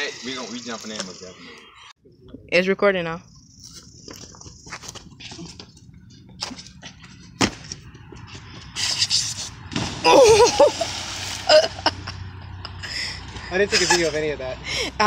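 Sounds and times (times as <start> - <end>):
water splash: 9.7 - 11.9
person yelling: 10.0 - 10.7.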